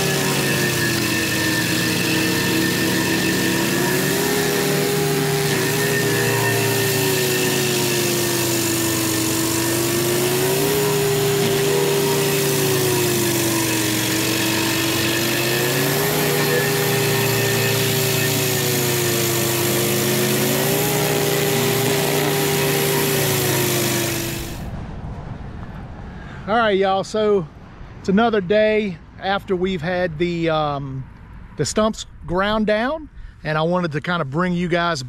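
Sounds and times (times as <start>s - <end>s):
stump grinder grinding wood: 0.0s - 24.8s.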